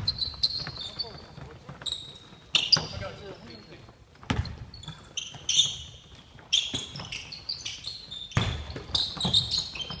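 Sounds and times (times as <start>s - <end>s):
sneakers squeaking: 0.0s - 10.0s
basketball thumping on floor: 4.2s - 4.7s.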